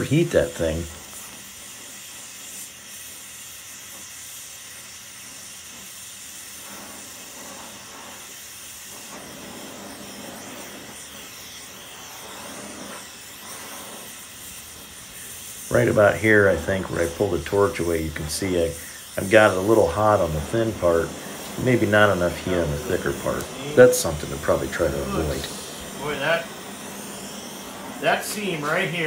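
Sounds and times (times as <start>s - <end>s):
torch flame hissing: 0.0s - 29.0s.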